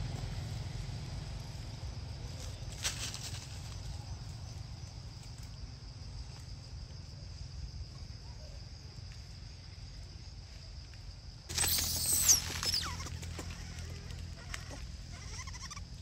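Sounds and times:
high-pitched insect drone: 11.5s - 16.0s.

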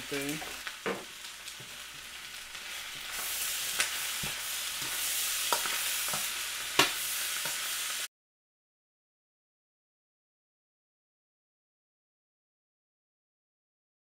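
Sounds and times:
rice sizzling in a wok: 0.0s - 8.1s.

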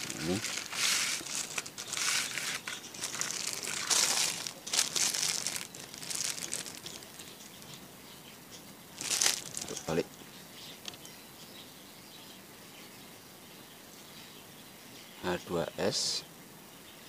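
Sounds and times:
plastic wrapping crinkling: 0.0s - 7.8s, 9.0s - 10.0s.

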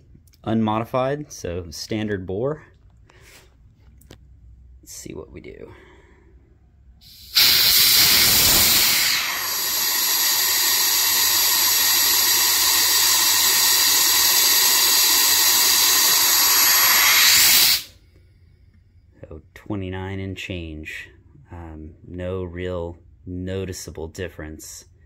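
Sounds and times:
compressed air hissing: 7.0s - 18.0s.

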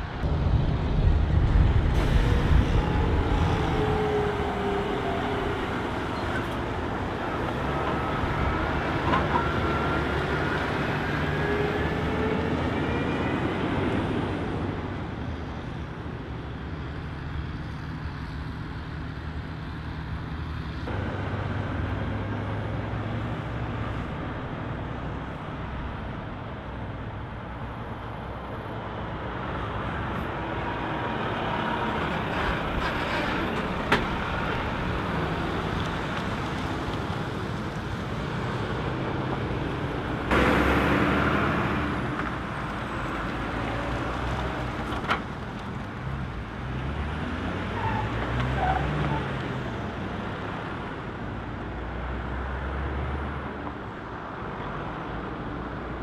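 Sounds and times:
truck diesel engines: 0.0s - 56.0s
tyre and road noise: 0.0s - 56.0s
sudden loud burst: 0.2s - 5.8s.

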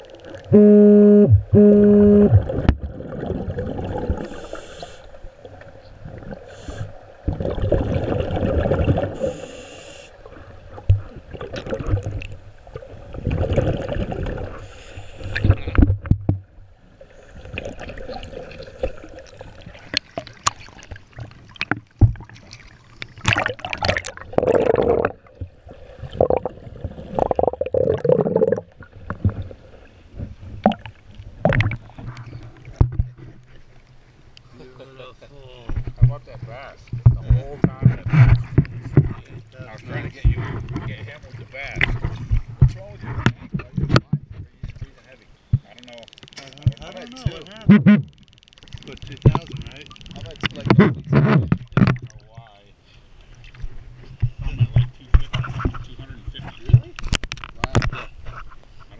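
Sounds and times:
low underwater rumble: 0.0s - 4.4s, 15.3s - 34.1s
underwater bubbles bursting: 0.0s - 4.6s, 6.0s - 9.5s, 10.8s - 14.6s, 17.4s - 29.7s, 30.6s - 33.0s.

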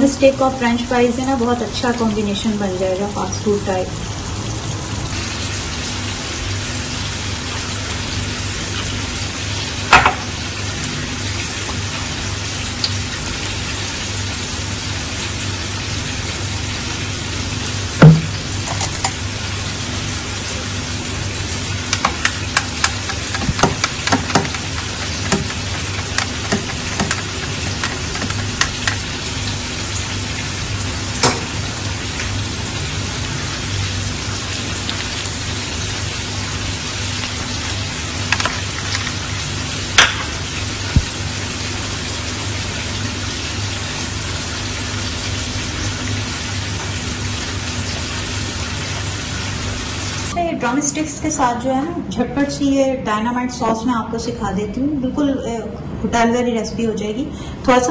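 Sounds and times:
food sizzling in hot oil: 0.5s - 50.4s
sharp clicks and knocks: 21.9s - 29.1s.

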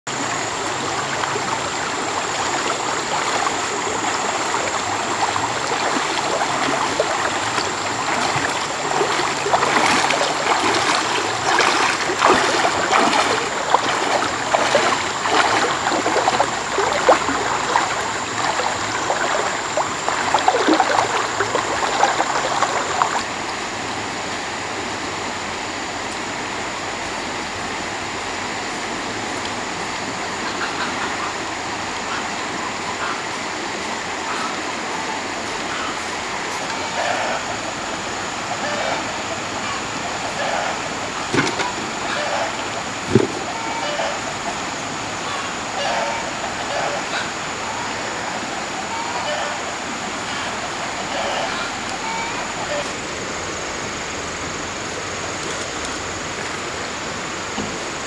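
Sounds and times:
running water: 0.0s - 58.0s
water splashing: 0.1s - 23.8s, 35.7s - 58.0s.

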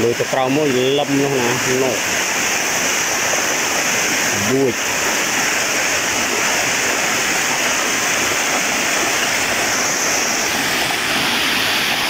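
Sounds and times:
stream water rushing over rock: 0.0s - 12.0s.

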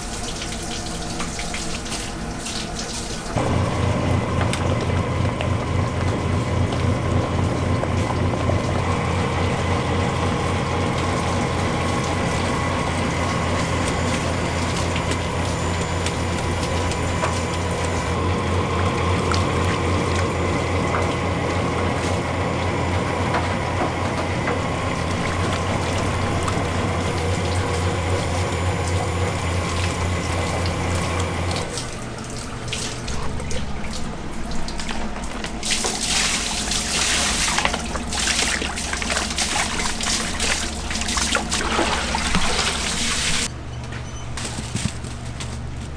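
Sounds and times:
machine pulsing hum: 0.0s - 45.9s
running water: 24.5s - 43.5s.

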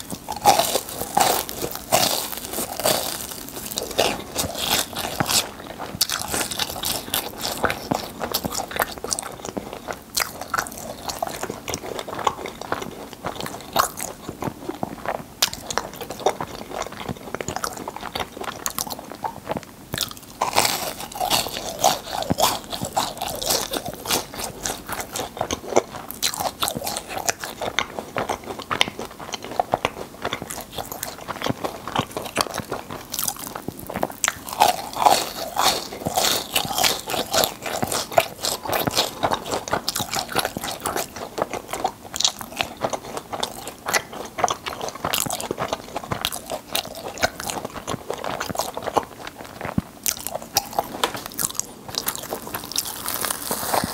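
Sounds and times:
crunching and chewing: 0.0s - 53.9s.

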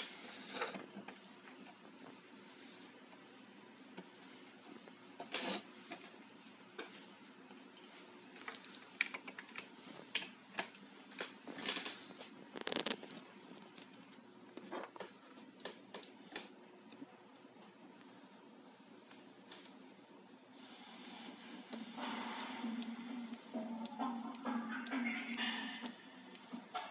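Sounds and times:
faint steady hum: 0.0s - 26.9s.

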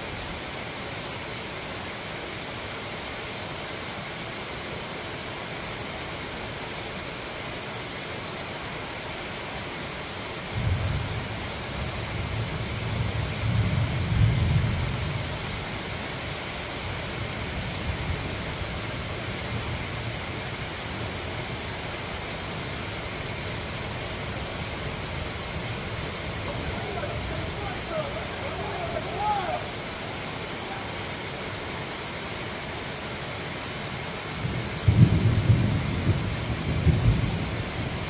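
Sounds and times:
rain hiss: 0.0s - 38.0s
thunder rolling: 34.4s - 38.0s.

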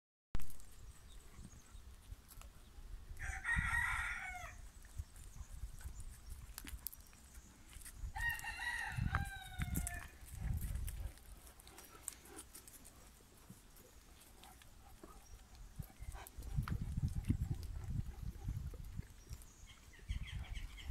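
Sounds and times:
rooster crowing: 3.2s - 4.6s, 8.2s - 10.1s.

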